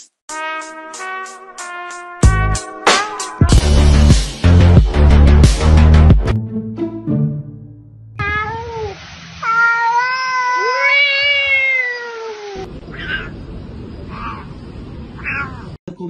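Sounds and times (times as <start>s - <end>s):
cat meowing and yowling: 8.2s - 13.4s, 14.1s - 14.6s, 15.2s - 15.8s.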